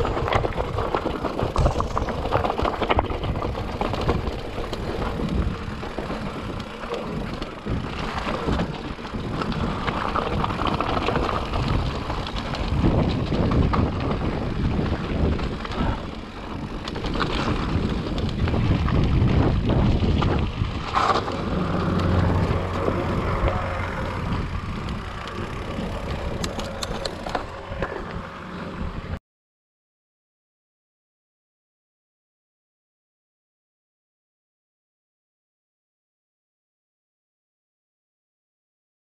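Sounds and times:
tyres crunching over rocks: 0.0s - 28.2s
bike clattering and rattling: 0.0s - 29.2s
wind noise on microphone: 0.0s - 29.2s.

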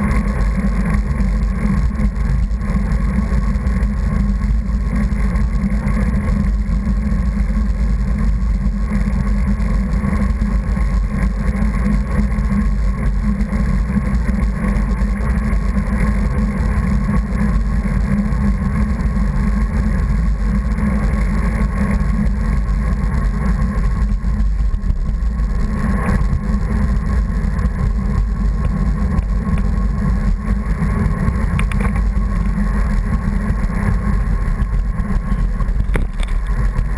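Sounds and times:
road and vehicle noise: 0.0s - 36.9s
wind buffeting microphone: 20.6s - 36.9s.

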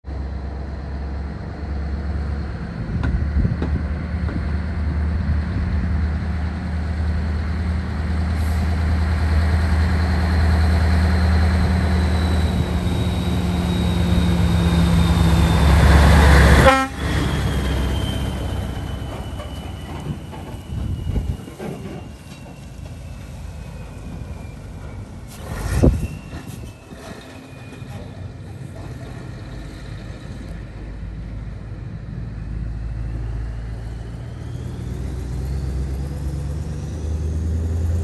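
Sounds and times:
diesel truck engine drone: 0.1s - 38.0s
turbo whistle: 11.8s - 22.8s.

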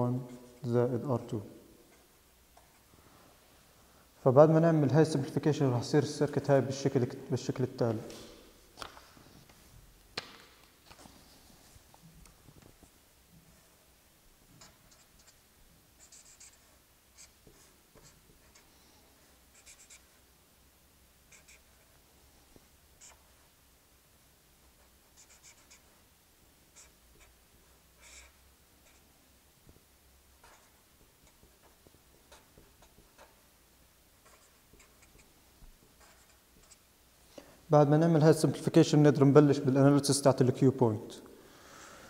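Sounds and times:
marker squeaking on paper: 14.5s - 15.4s, 16.0s - 18.7s, 19.5s - 20.2s, 21.3s - 21.9s, 23.0s - 23.5s, 24.7s - 26.0s, 26.7s - 27.4s, 28.0s - 29.1s, 30.4s - 33.5s, 34.2s - 36.9s.

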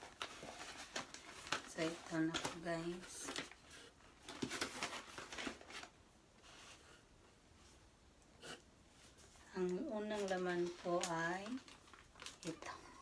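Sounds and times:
food parcel rustling: 0.0s - 7.1s, 8.9s - 13.0s.

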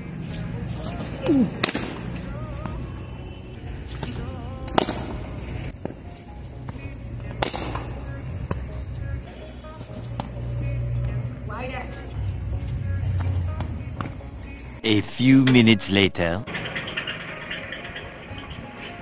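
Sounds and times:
high insect chirr: 0.0s - 19.0s
cricket bat striking ball: 1.6s - 2.1s, 4.0s - 5.3s.

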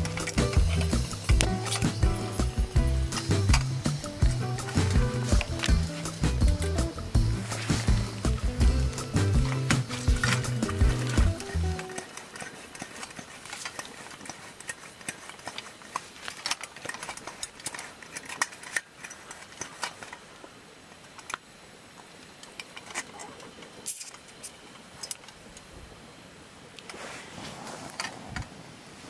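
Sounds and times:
hard objects clicking and clinking: 0.0s - 20.2s.

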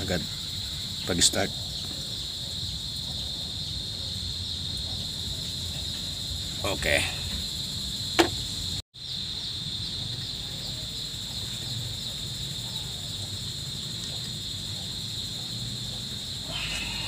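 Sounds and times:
crickets chirping: 0.0s - 17.0s
sharp knock: 8.2s - 8.4s.

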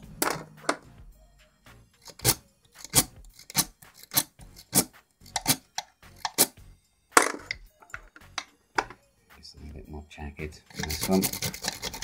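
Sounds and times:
lock pick scraping in lock: 2.0s - 6.6s, 10.7s - 12.0s.

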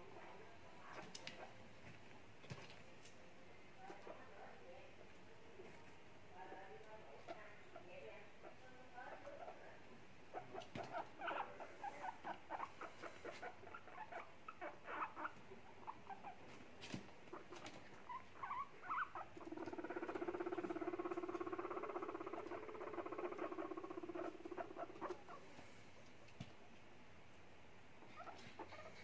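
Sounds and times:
guinea pig purring rumble: 0.0s - 1.6s, 3.8s - 25.7s, 28.0s - 29.0s
guinea pigs squeaking: 0.0s - 1.6s, 7.2s - 25.5s, 28.0s - 29.0s.

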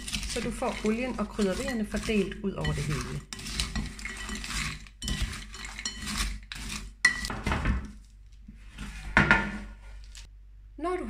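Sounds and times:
frozen beans rattling in glass bowl: 0.0s - 7.3s.

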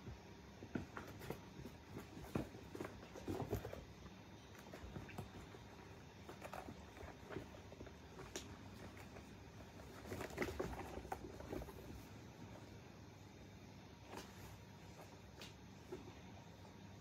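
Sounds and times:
paws scratching cardboard: 0.0s - 12.3s.

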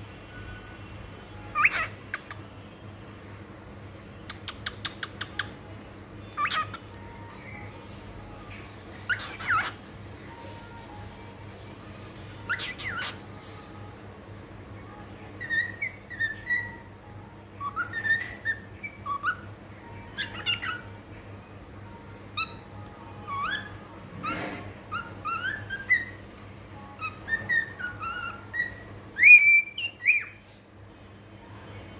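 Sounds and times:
cockatiel whistling: 1.5s - 2.3s, 6.3s - 6.7s, 9.1s - 9.8s, 12.4s - 13.2s, 15.4s - 16.9s, 17.6s - 19.5s, 20.1s - 20.9s, 23.3s - 26.2s, 27.0s - 30.4s.

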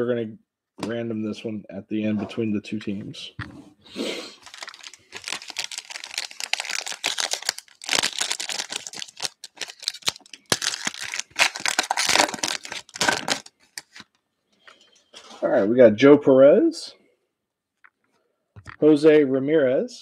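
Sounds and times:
foil wrapper tearing and crinkling: 4.4s - 14.1s.

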